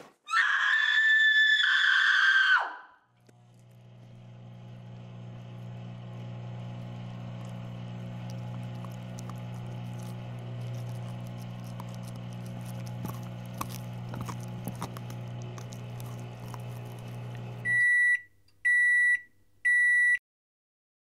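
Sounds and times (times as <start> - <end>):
microwave oven humming: 3.2 - 20.0
microwave beeps: 17.6 - 20.2.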